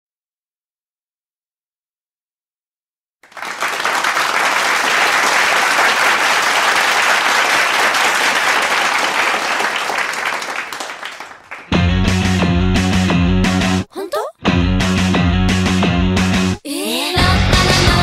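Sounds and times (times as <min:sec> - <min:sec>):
crowd applauding: 0:03.2 - 0:11.8.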